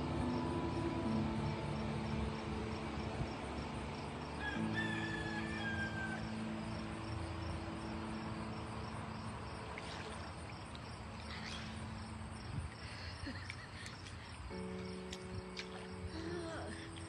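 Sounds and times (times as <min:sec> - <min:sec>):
held low tones: 0:00.0 - 0:12.8
insects chirping: 0:00.0 - 0:17.0
open-air hiss: 0:00.0 - 0:17.0.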